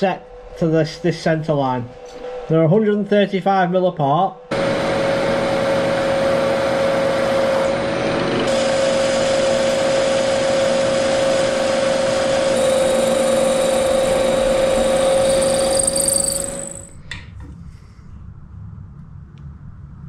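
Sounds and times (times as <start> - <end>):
milling machine spindle whine: 12.4 - 16.9
drill bit cutting metal: 12.5 - 17.0.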